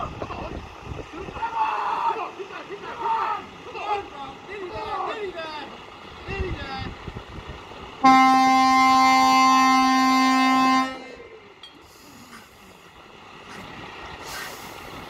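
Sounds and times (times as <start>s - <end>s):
truck air horn blast: 8.0s - 11.2s.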